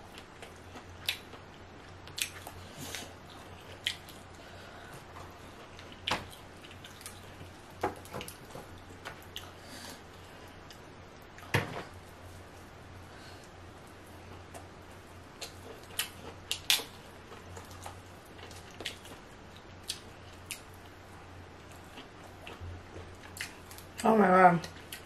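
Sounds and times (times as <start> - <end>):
low steady hum: 0.0 - 25.0
wet mouth clicks and chewing: 1.0 - 1.4, 2.0 - 4.2.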